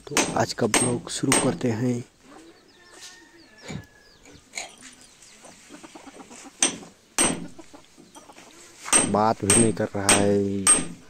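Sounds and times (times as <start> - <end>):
hammer striking steel chisel: 0.1 - 1.6, 6.6 - 7.5, 8.9 - 11.0
hens clucking: 2.2 - 8.9.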